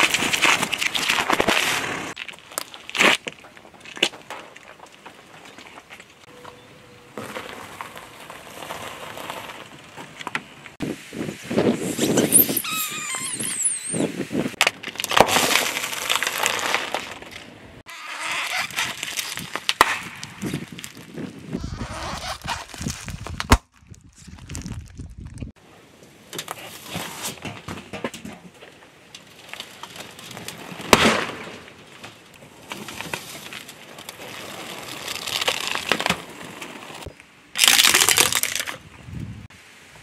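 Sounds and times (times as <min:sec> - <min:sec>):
car tyre crushing objects: 0:00.0 - 0:06.3, 0:07.1 - 0:10.8, 0:14.6 - 0:25.6, 0:26.4 - 0:38.9
plastic toy cracking: 0:37.6 - 0:38.8.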